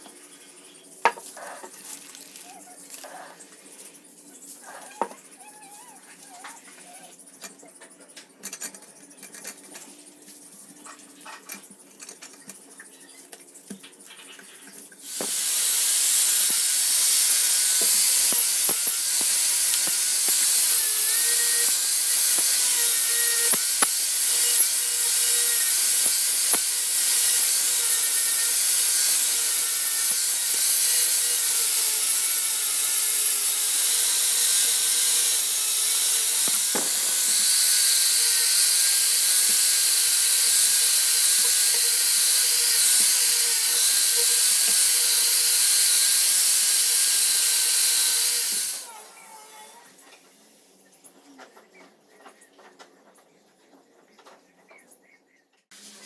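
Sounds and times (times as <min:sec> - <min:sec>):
angle grinder brushing metal: 0:01.1 - 0:03.4, 0:15.1 - 0:49.6.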